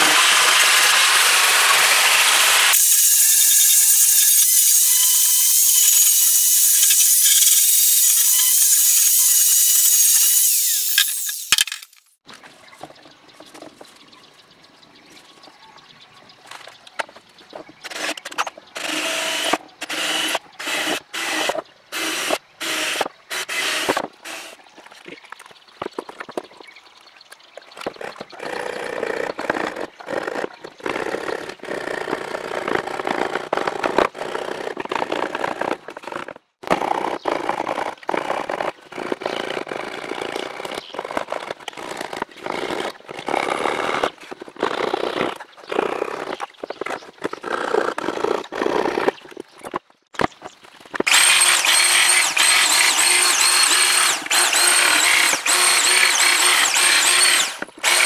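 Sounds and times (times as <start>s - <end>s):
coping saw rasping: 0.0s - 11.4s, 51.1s - 58.0s
cordless drill boring wood: 0.0s - 11.5s, 18.8s - 24.6s, 51.1s - 58.0s.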